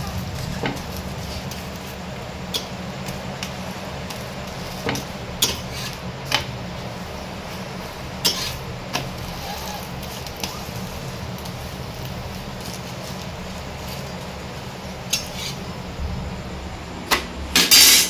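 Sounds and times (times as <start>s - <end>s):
steady low hum: 0.0s - 18.0s
metal utensils clinking on cookware: 2.4s - 6.5s, 8.2s - 11.5s, 15.0s - 15.6s, 17.6s - 18.0s.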